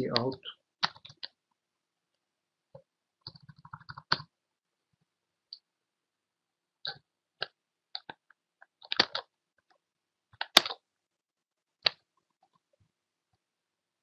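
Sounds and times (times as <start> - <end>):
keyboard keys clicking: 3.3 - 4.3.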